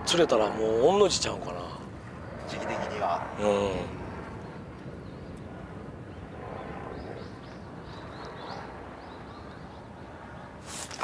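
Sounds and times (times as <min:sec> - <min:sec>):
low outdoor background: 0:00.0 - 0:11.0
bird chirping: 0:06.1 - 0:11.0.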